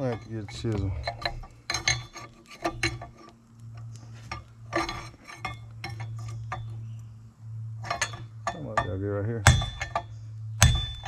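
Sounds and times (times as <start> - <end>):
steady low hum: 0.0 - 11.0
hammer striking steel chisel: 7.9 - 10.0, 10.6 - 11.0.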